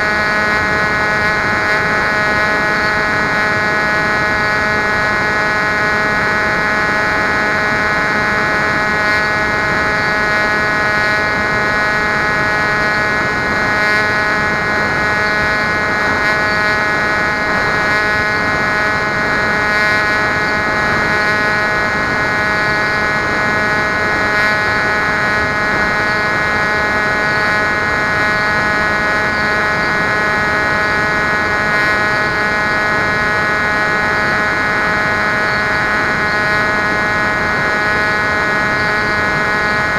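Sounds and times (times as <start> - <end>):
electric motor and propeller whine: 0.0 - 39.9.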